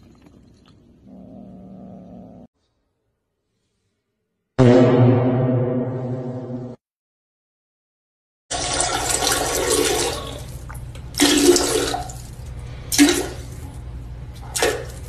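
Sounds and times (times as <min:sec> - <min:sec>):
water splashing in toilet bowl: 0:08.5 - 0:13.7.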